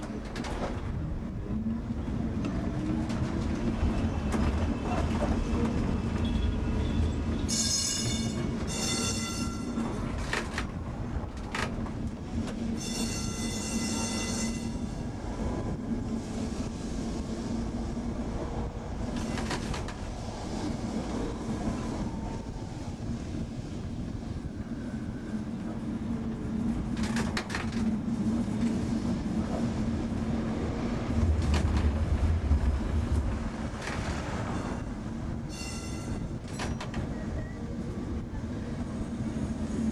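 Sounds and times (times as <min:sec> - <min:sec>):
tram motor and wheels rumbling: 0:00.0 - 0:39.9
high ringing tone: 0:07.5 - 0:09.8, 0:12.8 - 0:15.0, 0:35.5 - 0:36.3.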